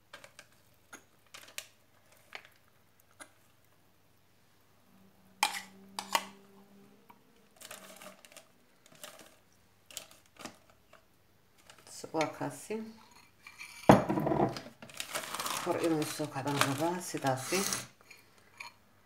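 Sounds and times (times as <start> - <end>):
metal spoon scraping glass bowl: 5.4 - 6.4, 13.0 - 13.9, 17.3 - 18.8.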